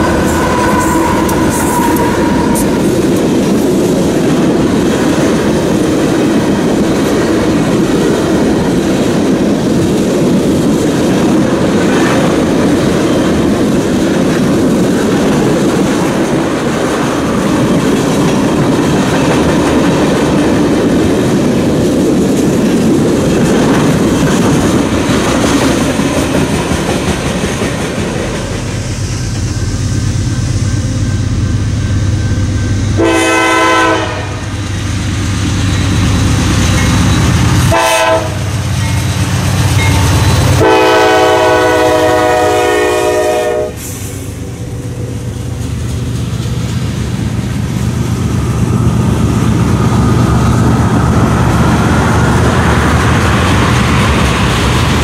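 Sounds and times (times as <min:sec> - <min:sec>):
multi-note train air horn: 0:00.0 - 0:03.0, 0:33.0 - 0:34.6, 0:37.7 - 0:38.5, 0:40.6 - 0:44.2
diesel locomotive drone: 0:00.0 - 0:55.0
train wheels rumbling on rail: 0:00.0 - 0:55.0.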